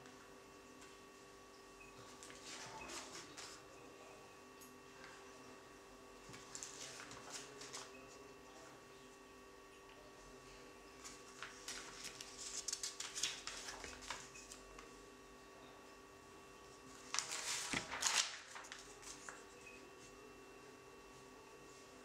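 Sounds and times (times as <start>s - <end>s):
paper pages rustling: 6.2s - 7.9s, 11.0s - 14.9s, 16.9s - 20.1s.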